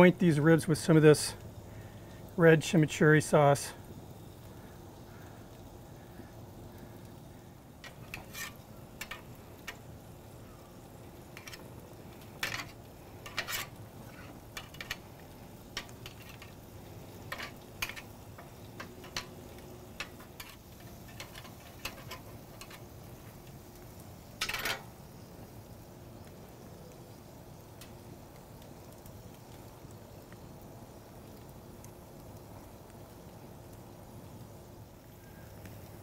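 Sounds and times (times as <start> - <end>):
faint steady hiss: 0.0 - 36.0
grilling tools clinking on grate: 7.8 - 9.9, 11.2 - 23.3, 24.3 - 25.0.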